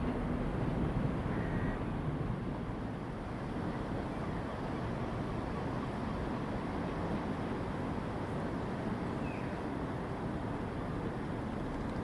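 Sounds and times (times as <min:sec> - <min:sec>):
diesel train rumbling: 0:00.0 - 0:04.2.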